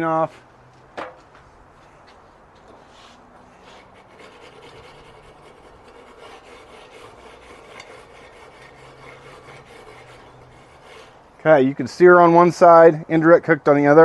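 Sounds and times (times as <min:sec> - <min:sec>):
wire brush scrubbing grill grate: 0:02.8 - 0:11.3.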